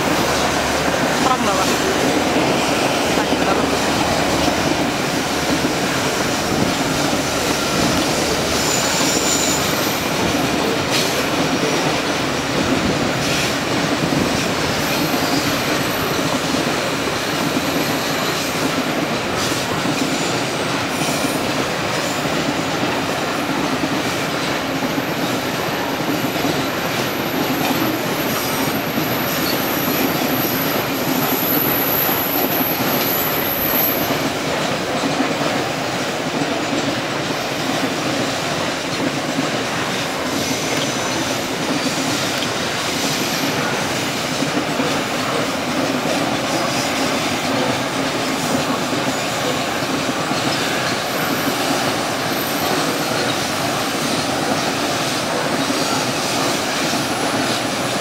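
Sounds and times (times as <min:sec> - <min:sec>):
train wheels rumbling on rail: 0:00.0 - 0:58.0
high-pitched wheel squeal: 0:08.5 - 0:10.0.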